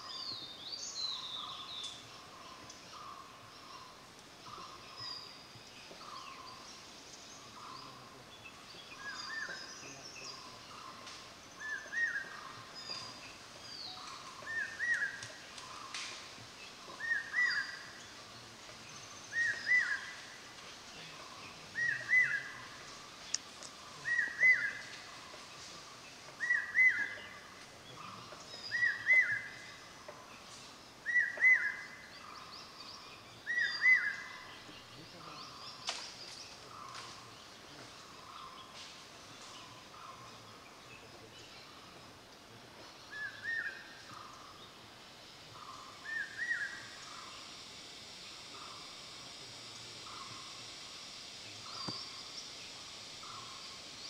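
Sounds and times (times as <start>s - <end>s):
birds chirping in background: 0.0s - 54.0s.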